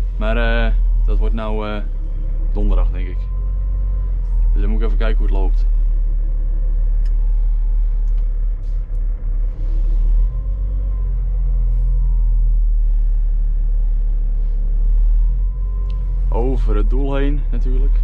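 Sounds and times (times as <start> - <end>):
diesel engine deep rumble: 0.0 - 18.0
faint engine whine: 0.0 - 18.0.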